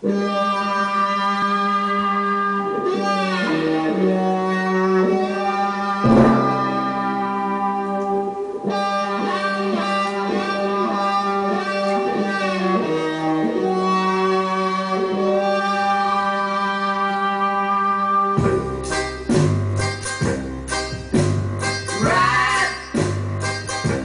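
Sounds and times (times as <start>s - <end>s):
instrumental pop music from vinyl: 18.4s - 24.0s.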